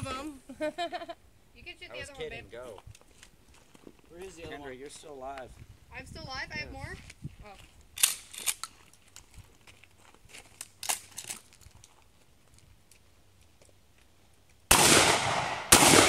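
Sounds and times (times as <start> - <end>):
loud echoing gunshot: 14.7 - 16.0.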